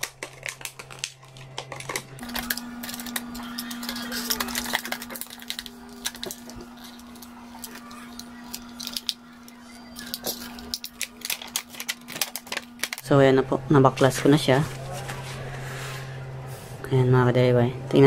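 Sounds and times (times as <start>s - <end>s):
plastic wrap crinkling and crackling: 0.0s - 13.1s
steady low hum: 0.0s - 18.0s.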